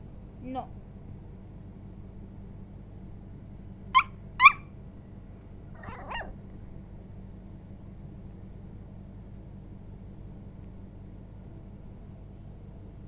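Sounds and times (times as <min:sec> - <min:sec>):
puppy yipping: 0:03.9 - 0:04.7, 0:05.8 - 0:06.4
puppy whimpering: 0:04.0 - 0:04.6, 0:05.8 - 0:06.4.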